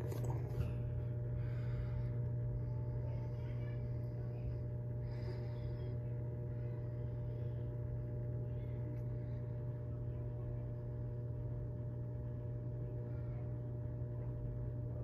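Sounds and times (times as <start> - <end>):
aquarium pumps humming: 0.0 - 15.0.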